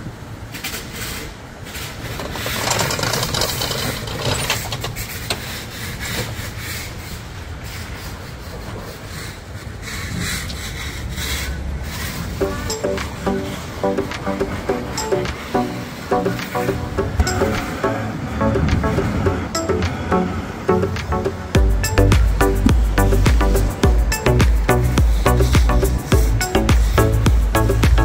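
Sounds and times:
rough scraping and rubbing: 0.8 - 14.0
low engine rumble: 9.4 - 28.0.

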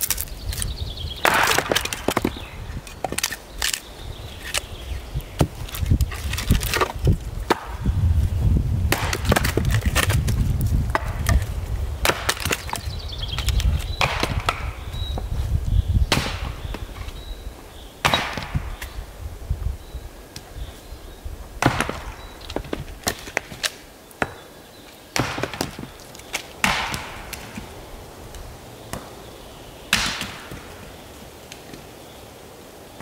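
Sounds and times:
logs knocking together: 1.2 - 3.8, 5.4 - 7.8, 8.9 - 15.3, 25.2 - 27.7.

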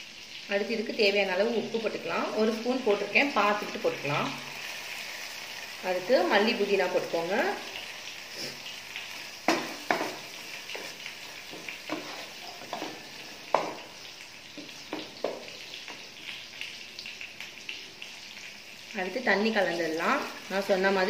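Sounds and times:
masala sizzling in pot: 0.0 - 21.0
spatula scraping pot: 9.7 - 13.6.

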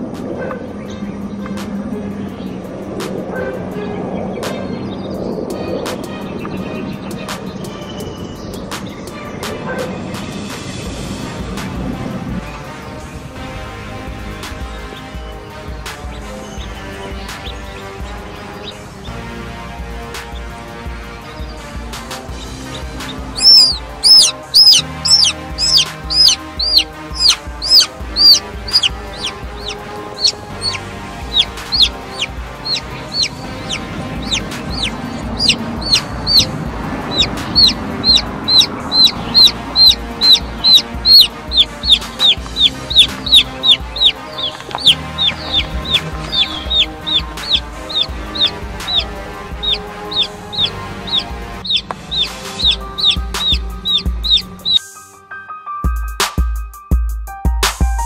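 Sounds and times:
music: 0.0 - 58.0
chick peeping loudly: 22.4 - 36.5, 37.1 - 54.8.

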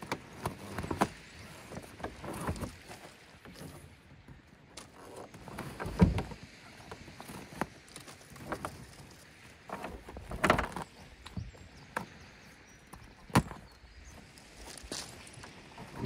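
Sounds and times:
gear knocking on plastic kayak: 0.0 - 2.8.

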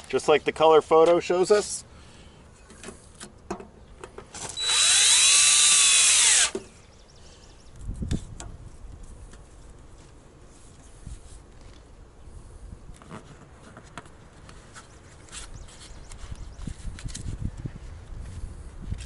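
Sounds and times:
cordless drill driving screw: 4.5 - 6.6.

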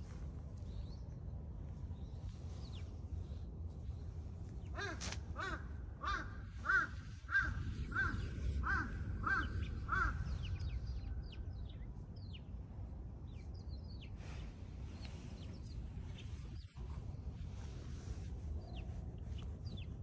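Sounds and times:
crow cawing: 4.8 - 10.6.

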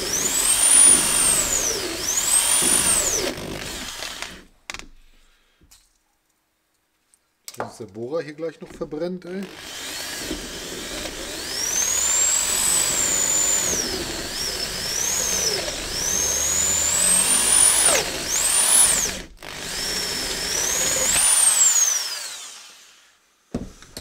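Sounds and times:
electric drill whining: 0.0 - 4.5, 9.4 - 24.0.

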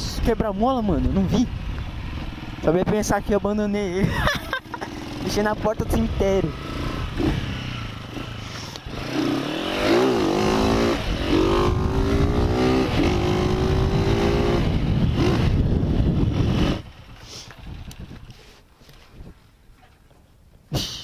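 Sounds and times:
motorcycle engine accelerating: 0.0 - 18.6
wind rushing on microphone: 10.4 - 17.0.

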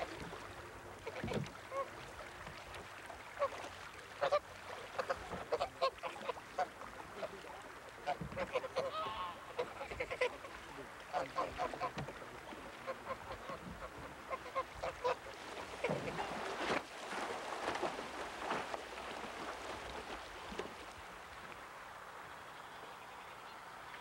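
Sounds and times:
water splashing: 0.0 - 22.1
geese honking: 8.4 - 10.3.

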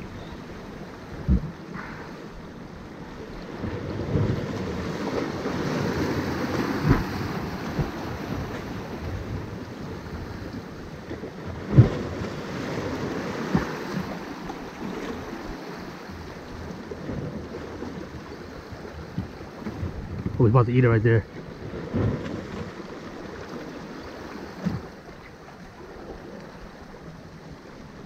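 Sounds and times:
waves lapping against rocks: 0.0 - 28.0
wind buffeting microphone: 0.0 - 28.0.

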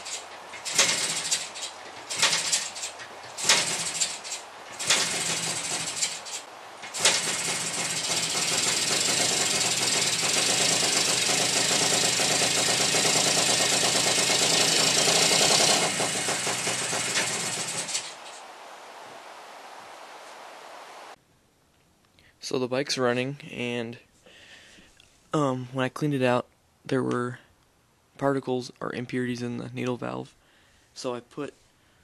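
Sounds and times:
dirtbike engine kick-started: 0.0 - 18.4.

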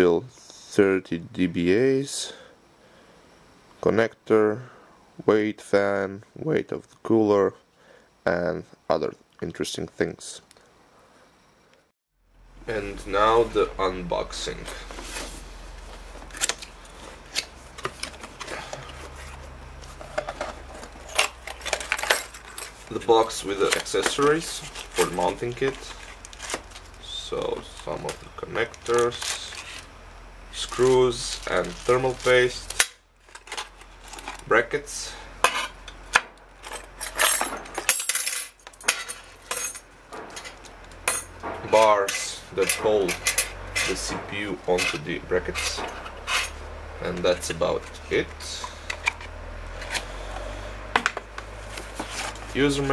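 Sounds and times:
steady low hum: 0.0 - 52.9
plastic bags rustling: 14.3 - 34.5
metal brackets clinking: 36.6 - 46.6
cardboard flaps sliding and scraping: 51.6 - 52.6.

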